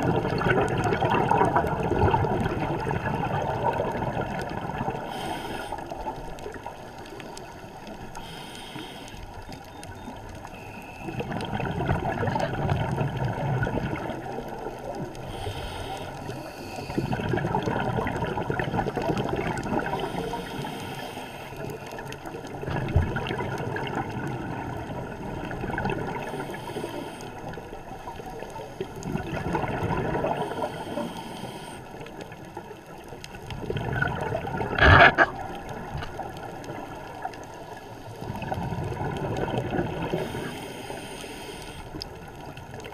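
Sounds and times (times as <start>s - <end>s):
exhaled air bubbling underwater: 0.0s - 42.9s
scuba regulator inhale hiss: 5.0s - 6.1s, 8.2s - 9.3s, 15.2s - 17.2s, 19.8s - 21.9s, 26.2s - 27.4s, 30.3s - 32.0s, 40.1s - 42.0s.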